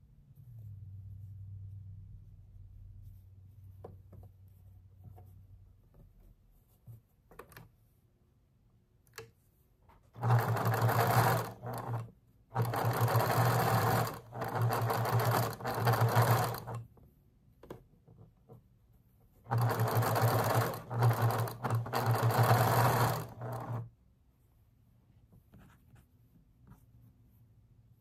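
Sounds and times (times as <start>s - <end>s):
sewing machine stitching: 10.1s - 16.9s, 19.4s - 23.9s.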